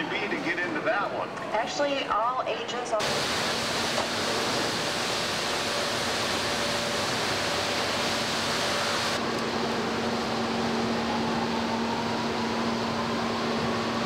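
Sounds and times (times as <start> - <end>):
machinery hiss and hum: 2.7 - 11.0
low machine drone: 4.1 - 14.0.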